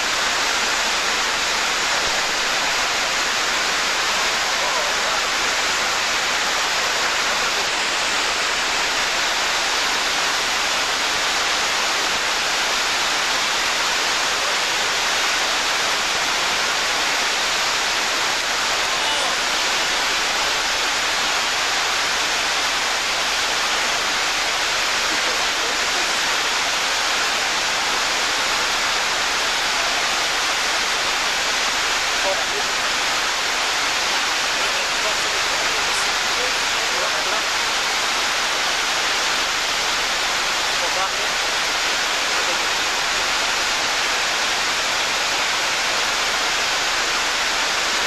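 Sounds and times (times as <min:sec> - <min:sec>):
water rushing over weir: 0:00.0 - 0:48.0.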